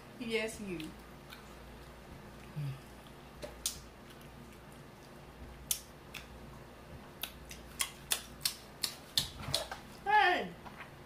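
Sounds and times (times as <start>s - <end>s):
eating clicks: 7.2s - 9.7s.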